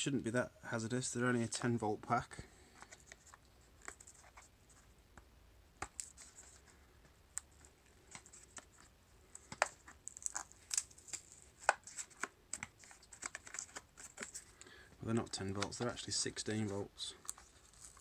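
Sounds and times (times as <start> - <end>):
fingernail picking plastic wrapping: 9.4 - 14.4.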